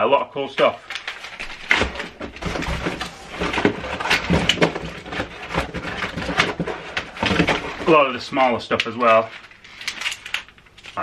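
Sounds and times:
plastic packets rustling: 0.6 - 11.0.

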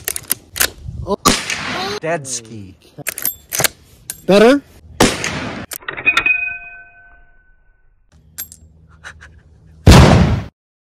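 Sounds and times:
loud gunshot: 1.2 - 2.0, 5.0 - 5.7, 9.9 - 10.5.

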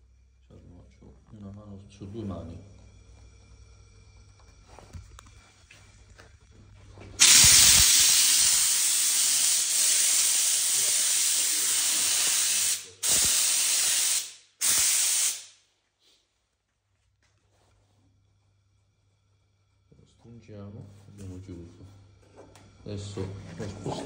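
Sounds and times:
steam jet hissing: 7.2 - 15.6.

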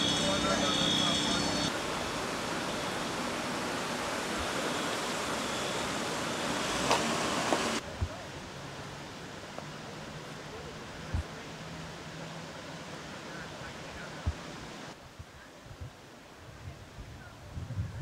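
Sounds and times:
outdoor rushing noise: 0.0 - 8.2.

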